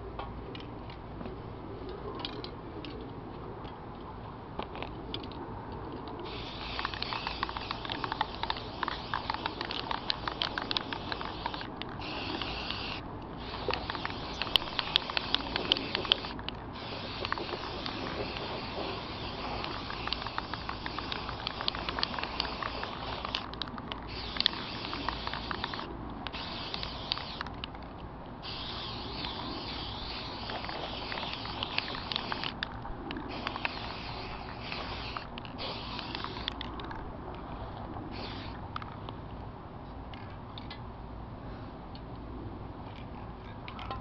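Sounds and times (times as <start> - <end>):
crackling clicks: 4.6 - 37.4
aerosol spray can hissing: 6.3 - 23.4, 24.1 - 27.4, 28.4 - 32.6, 33.3 - 36.5, 38.1 - 38.6.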